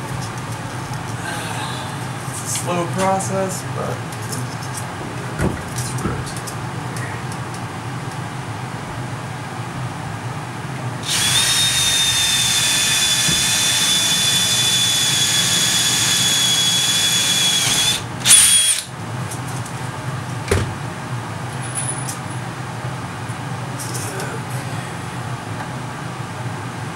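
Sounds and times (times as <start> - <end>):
cordless drill motor whine: 11.0 - 18.9.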